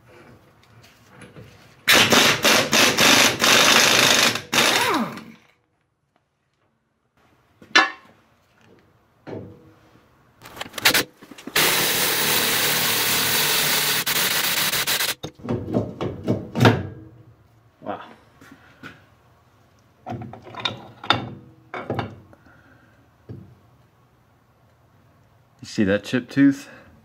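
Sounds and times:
pneumatic impact wrench hammering: 1.9 - 5.4, 10.7 - 15.3.

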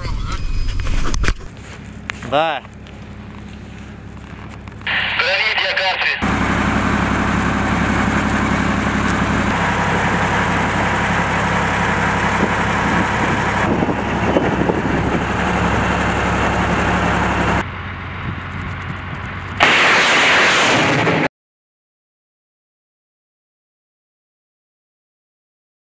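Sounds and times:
truck engine idling: 1.5 - 19.7
rockets firing: 19.6 - 21.3.

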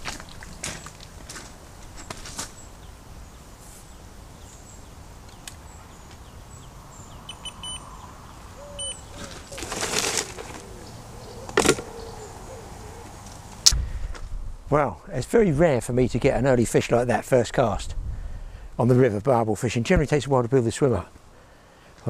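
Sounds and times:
rustling: 0.0 - 2.7, 8.8 - 12.0
low background noise: 0.0 - 22.0
bird chirps: 3.8 - 9.6.

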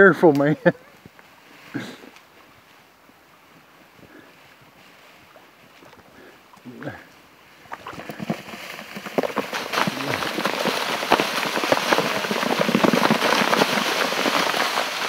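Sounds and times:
dry leaves crackling and rustling: 7.1 - 15.0.

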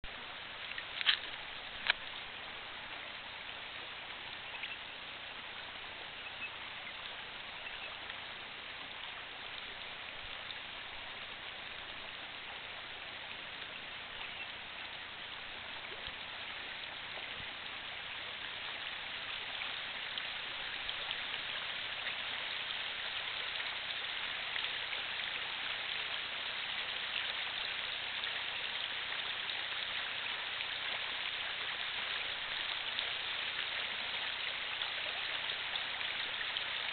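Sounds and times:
steady outdoor hiss: 0.0 - 36.9
faint ticks: 0.6 - 2.2, 15.8 - 19.0.

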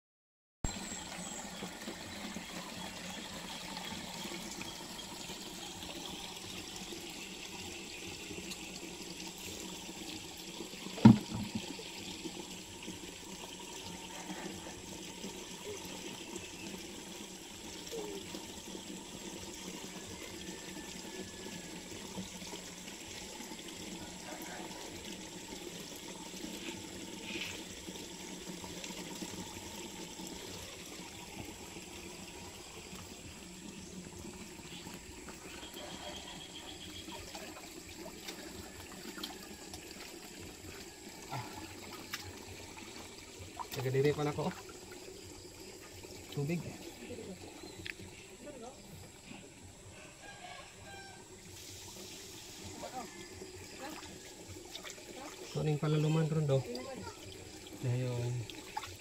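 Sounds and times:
water trickling among rocks: 0.7 - 49.7, 50.4 - 59.0
sharp thump: 11.0 - 11.6.

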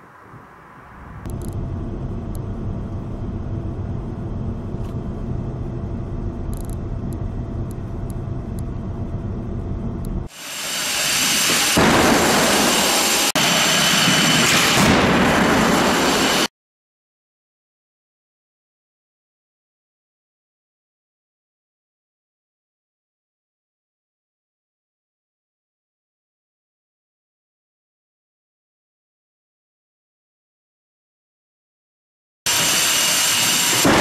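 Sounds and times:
car engine hum and road noise: 0.0 - 10.3
dense rushing roar of crash: 11.7 - 16.5.

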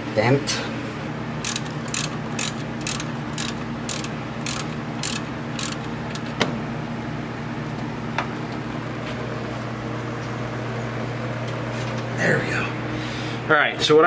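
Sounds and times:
steady low hum: 0.0 - 14.0
hand ratchet clicking: 1.4 - 6.3.

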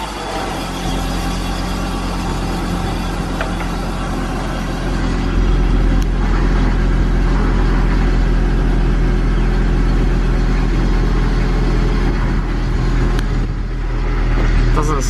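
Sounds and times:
van engine running: 0.0 - 15.0.

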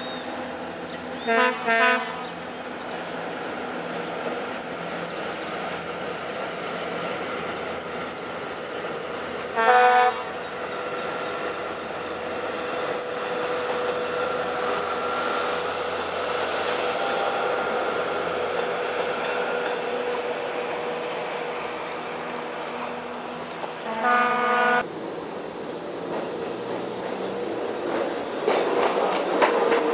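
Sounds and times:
diesel railcar engine droning: 0.0 - 29.9
train horn blast: 1.2 - 2.4, 9.5 - 10.4, 23.8 - 24.8.

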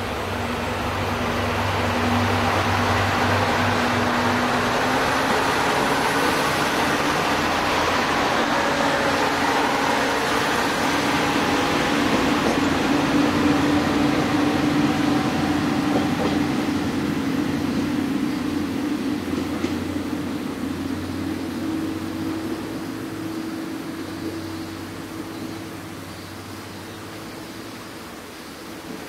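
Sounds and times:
diesel train engine drone: 0.0 - 29.0
train wheels on rails: 0.0 - 29.0.

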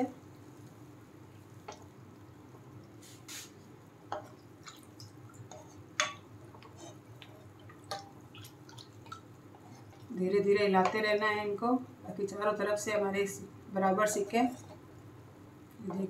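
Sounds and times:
dough frying with bubbling: 0.0 - 11.4.

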